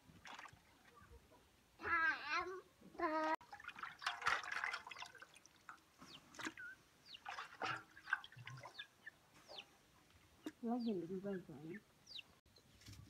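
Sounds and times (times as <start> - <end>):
water splashing and dripping: 0.0 - 1.0, 3.0 - 9.2.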